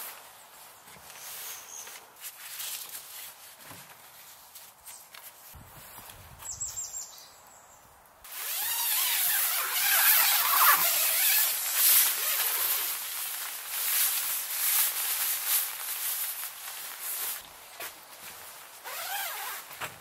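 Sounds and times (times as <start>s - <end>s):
tent fabric rustling: 8.2s - 20.0s.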